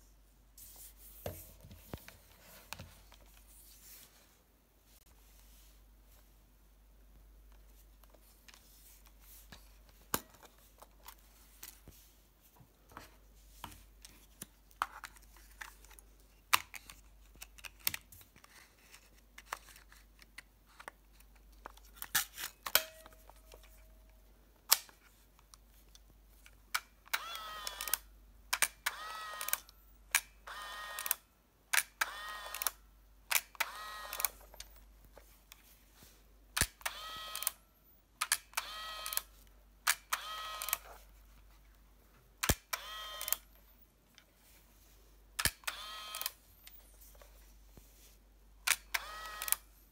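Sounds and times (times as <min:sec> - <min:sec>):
plastic camera clicks: 0:26.7 - 0:34.8, 0:36.6 - 0:37.6, 0:38.2 - 0:40.9, 0:42.4 - 0:43.5, 0:45.4 - 0:46.8, 0:48.6 - 0:49.7
camera motor whirring: 0:27.1 - 0:28.0, 0:28.8 - 0:29.7, 0:30.4 - 0:31.2, 0:32.0 - 0:32.8, 0:33.6 - 0:34.4, 0:36.6 - 0:37.6, 0:38.5 - 0:39.3, 0:40.1 - 0:40.9, 0:42.6 - 0:43.5, 0:45.4 - 0:46.4, 0:48.7 - 0:49.7.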